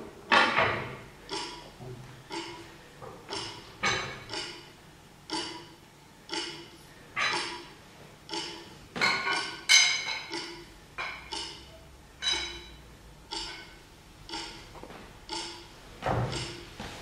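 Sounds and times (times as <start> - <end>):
ringing metallic clangs: 9.0 - 11.3, 12.2 - 12.8.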